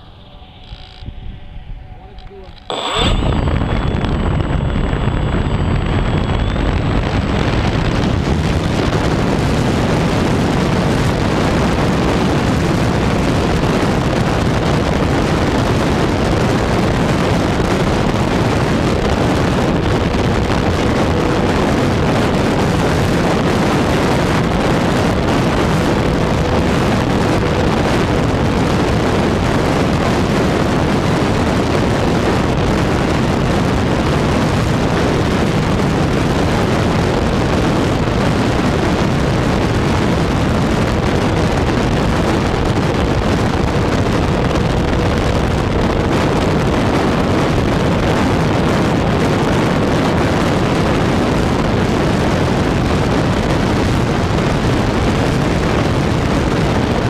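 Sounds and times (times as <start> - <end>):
wind buffeting microphone: 0.0 - 57.0
model airplane propeller and motor: 0.1 - 52.4.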